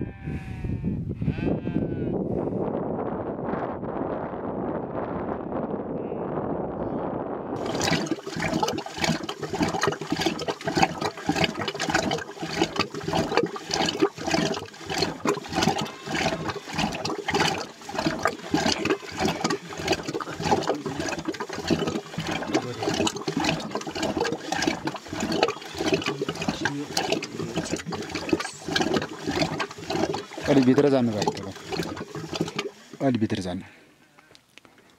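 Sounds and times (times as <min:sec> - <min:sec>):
liquid sloshing in churn: 0:07.6 - 0:33.5.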